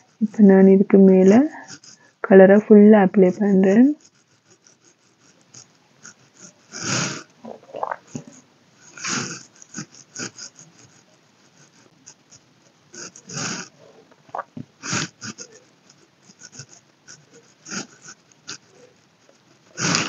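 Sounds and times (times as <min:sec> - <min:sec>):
person breathing close to microphone: 0:19.7 - 0:20.0.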